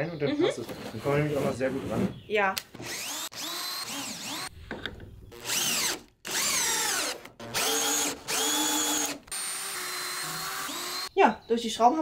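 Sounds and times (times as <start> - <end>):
cordless drill driving screws: 2.7 - 4.5, 5.3 - 11.1.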